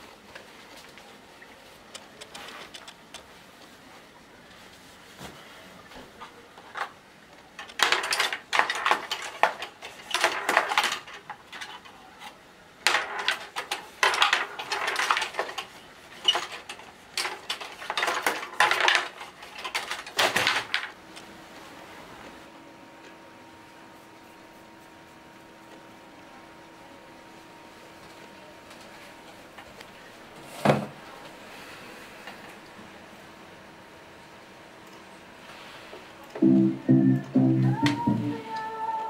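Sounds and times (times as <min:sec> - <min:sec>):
foosball game clattering: 0:07.6 - 0:11.9, 0:12.8 - 0:21.0.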